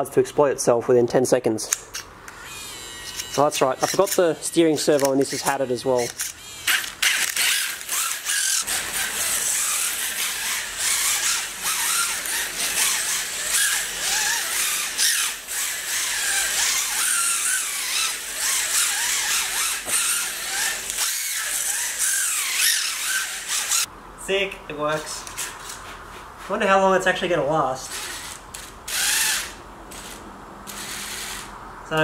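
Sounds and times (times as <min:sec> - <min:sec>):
toy car motor whining: 0:02.3 - 0:23.9, 0:27.9 - 0:31.5.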